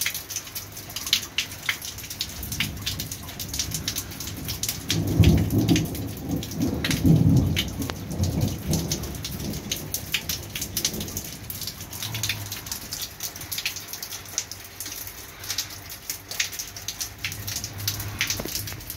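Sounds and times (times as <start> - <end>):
steady rain: 0.0 - 18.9
thunder rumbling: 2.3 - 13.2.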